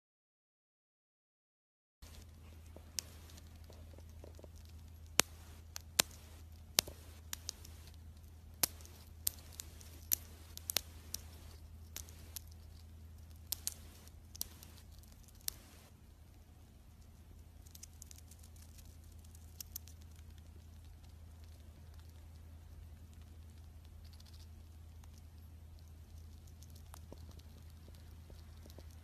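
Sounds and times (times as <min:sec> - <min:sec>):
chipmunk crunching food: 0:02.0 - 0:29.0
low steady hum: 0:02.0 - 0:29.0.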